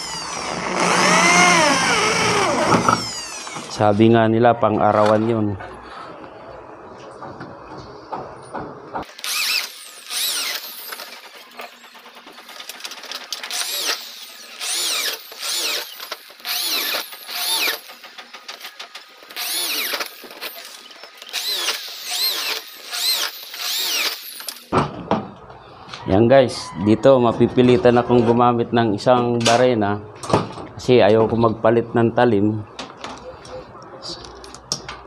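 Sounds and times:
electric drill whining: 0:00.0 - 0:03.8, 0:09.1 - 0:12.8, 0:13.4 - 0:18.7, 0:19.3 - 0:24.7.

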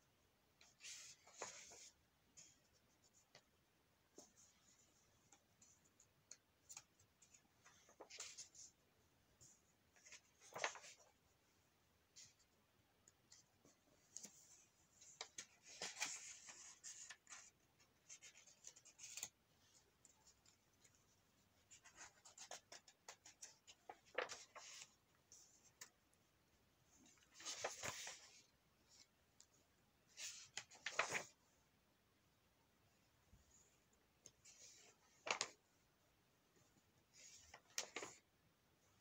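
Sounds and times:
magazine pages rustling: 0:09.9 - 0:11.2, 0:15.1 - 0:19.4, 0:21.7 - 0:25.0, 0:27.1 - 0:29.1, 0:30.1 - 0:31.4, 0:34.4 - 0:35.6, 0:37.1 - 0:38.3.

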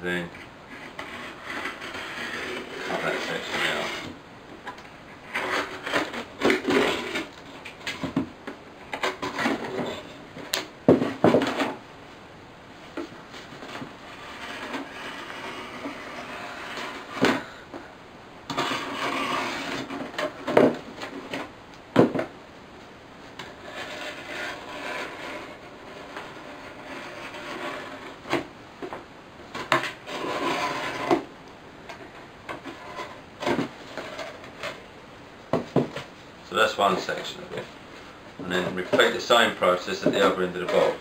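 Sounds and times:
blade cutting cardboard: 0:00.8 - 0:04.1, 0:05.3 - 0:07.3, 0:14.0 - 0:17.4, 0:18.5 - 0:20.8, 0:23.4 - 0:28.4, 0:29.7 - 0:31.3.

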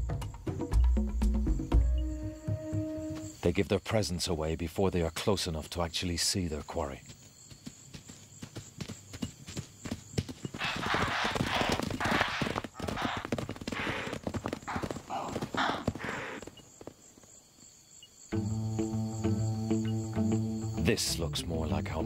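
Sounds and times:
herd hoofbeats galloping: 0:06.6 - 0:17.0.

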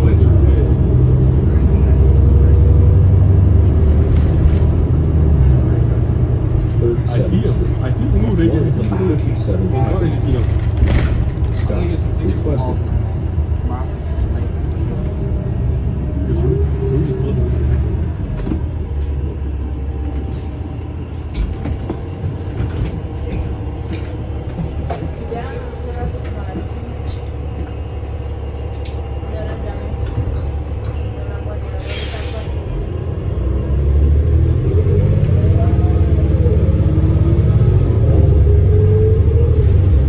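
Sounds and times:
bus engine and road rumble: 0:00.0 - 0:40.0
interior rattles and clicks: 0:10.0 - 0:12.7.

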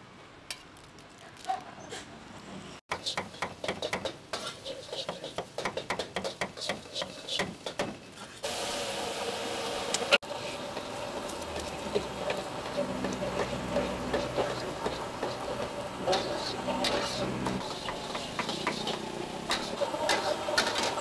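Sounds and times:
eggs sizzling in wok: 0:02.9 - 0:21.0
metal spatula scraping wok: 0:03.0 - 0:08.4, 0:10.3 - 0:21.0.

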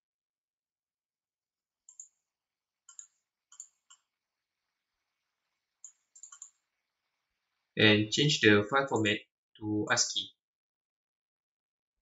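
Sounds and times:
computer mouse clicking: 0:01.9 - 0:02.2, 0:02.8 - 0:04.1, 0:05.8 - 0:06.7.

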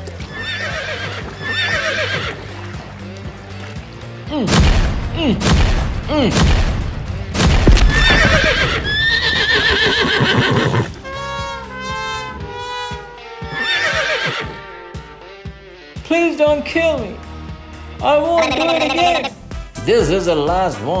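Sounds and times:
background music: 0:00.0 - 0:21.0
horses whinnying: 0:00.2 - 0:02.6, 0:07.6 - 0:11.4, 0:13.5 - 0:14.8
heavy thumps: 0:04.6 - 0:09.0.

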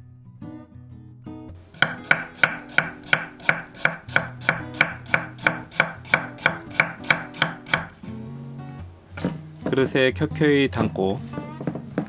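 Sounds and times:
knife chopping on wooden board: 0:01.7 - 0:07.9.

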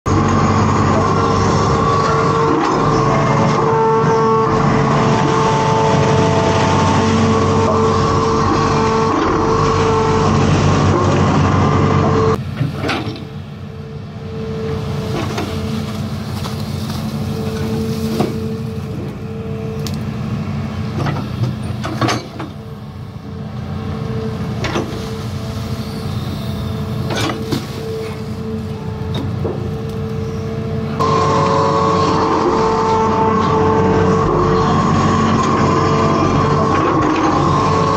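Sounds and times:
excavator diesel engine running: 0:00.1 - 0:37.9
steady whine: 0:00.1 - 0:37.9
excavator bucket clanking: 0:12.4 - 0:13.4, 0:15.0 - 0:19.2, 0:20.9 - 0:22.8, 0:24.5 - 0:30.4.

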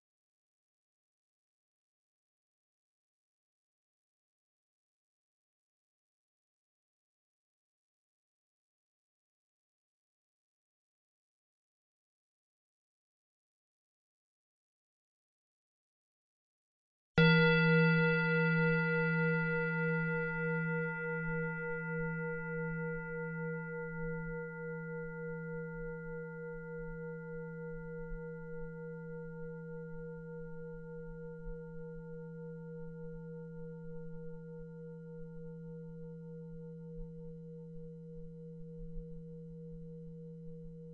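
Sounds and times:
singing bowl ringing: 0:17.2 - 0:40.9.

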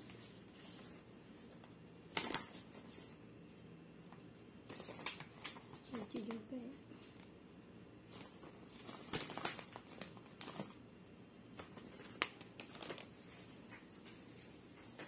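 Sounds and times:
plastic glove crinkling: 0:00.0 - 0:15.0.

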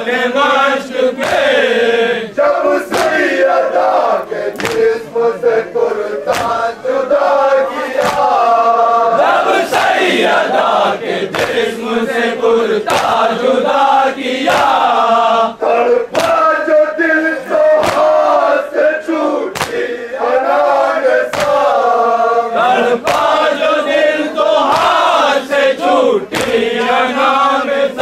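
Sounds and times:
men chanting a lament: 0:00.0 - 0:28.0
hands slapping on chests: 0:01.2 - 0:01.6, 0:02.9 - 0:03.4, 0:04.5 - 0:05.0, 0:06.3 - 0:06.8, 0:08.0 - 0:08.4, 0:09.6 - 0:10.2, 0:11.3 - 0:11.8, 0:12.8 - 0:13.4, 0:14.4 - 0:15.0, 0:16.1 - 0:16.5, 0:17.7 - 0:18.3, 0:19.5 - 0:20.0, 0:21.2 - 0:21.8, 0:23.0 - 0:23.6, 0:24.6 - 0:25.2, 0:25.8 - 0:27.0.

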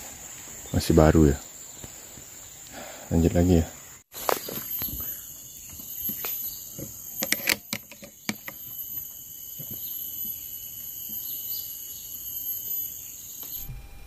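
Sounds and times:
high insect drone: 0:00.0 - 0:13.9
air rifle clicks and knocks: 0:07.2 - 0:08.6.

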